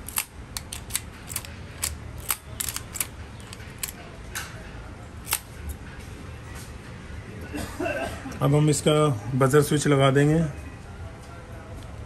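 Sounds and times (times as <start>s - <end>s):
key clicking in lock: 0.0s - 4.0s.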